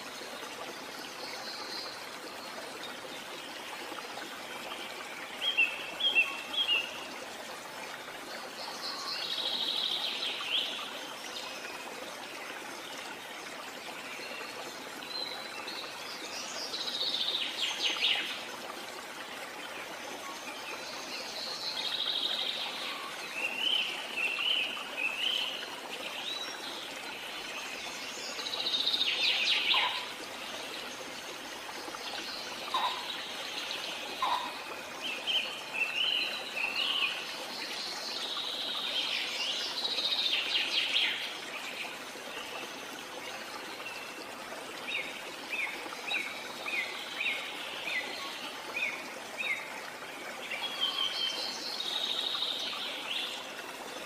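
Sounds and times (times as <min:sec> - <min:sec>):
songbirds singing: 0:20.2 - 0:42.8.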